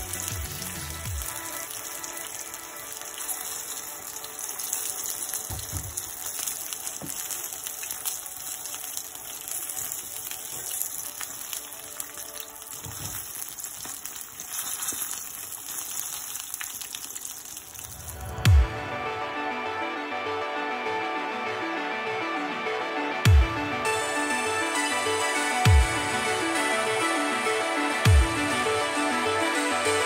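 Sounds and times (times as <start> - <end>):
chicken wings sizzling in oil: 0.0 - 18.4.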